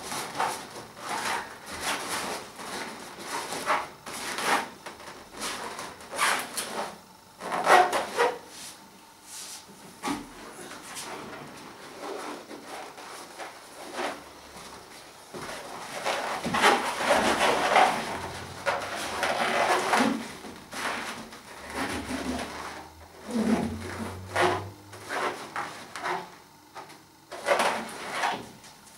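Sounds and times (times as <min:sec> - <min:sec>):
balloons rubbing and squeaking: 0:00.0 - 0:08.4, 0:15.7 - 0:26.3.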